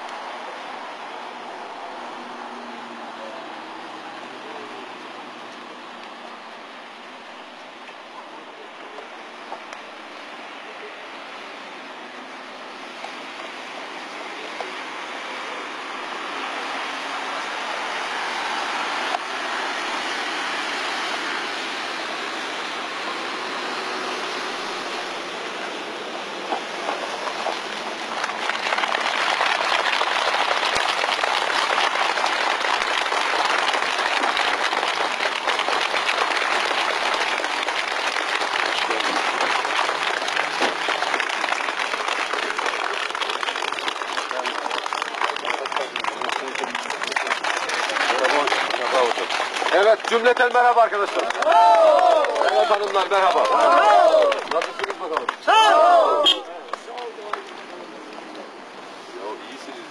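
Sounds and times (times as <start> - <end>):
crowd applauding: 26.5 - 58.2.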